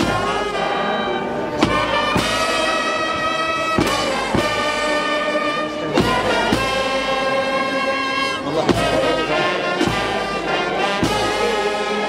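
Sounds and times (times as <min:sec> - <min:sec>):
brass band playing sustained chords: 0:00.0 - 0:12.0
sharp percussion strikes: 0:01.6 - 0:07.4.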